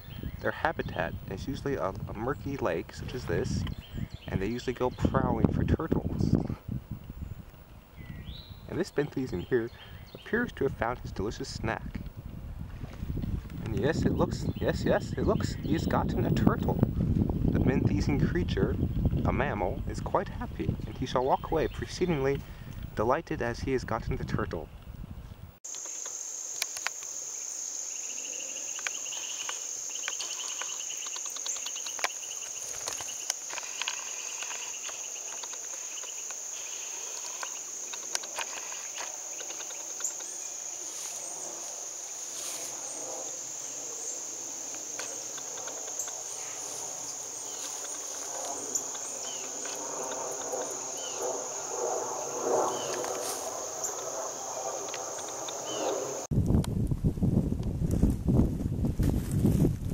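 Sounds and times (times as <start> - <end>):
insects trilling: 0.0 - 6.4, 7.0 - 11.8, 25.6 - 56.3
scattered clicks: 37.0 - 40.3, 44.7 - 46.2, 54.8 - 55.6.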